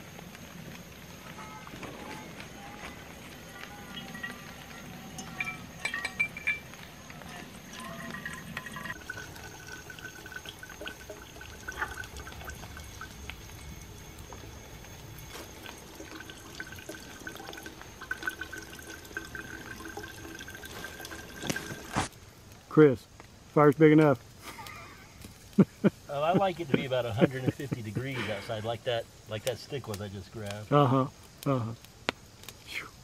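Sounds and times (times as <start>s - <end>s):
water trickling into metal bottle: 3.4s - 22.1s.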